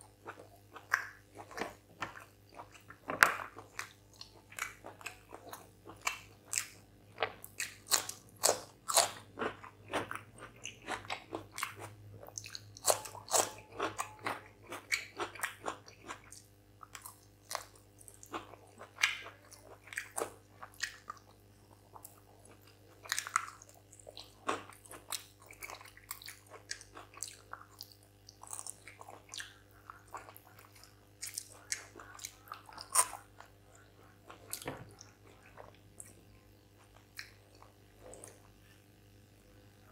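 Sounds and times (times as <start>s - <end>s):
crunching cucumber bites: 0.2s - 21.2s
wet chewing: 21.9s - 38.6s.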